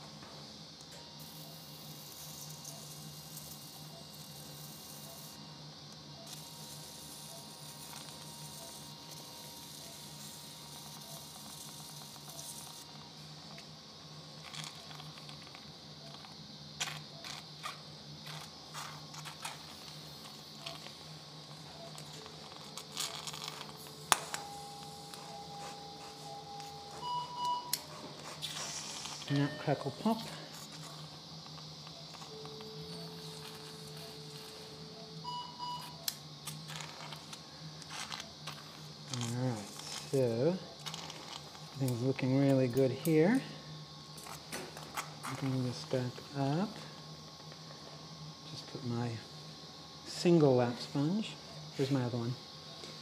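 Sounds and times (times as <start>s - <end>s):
low hum and hiss: 0.0s - 53.0s
steady electronic tones: 19.6s - 37.3s
surgical instruments clicking: 21.9s - 25.3s
faint beep: 24.3s - 27.8s, 29.3s - 30.3s, 35.0s - 36.1s.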